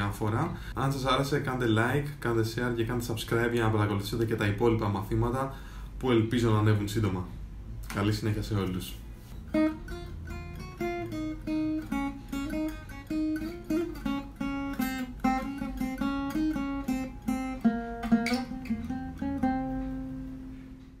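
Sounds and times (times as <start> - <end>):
acoustic guitar melody: 9.2 - 21.0.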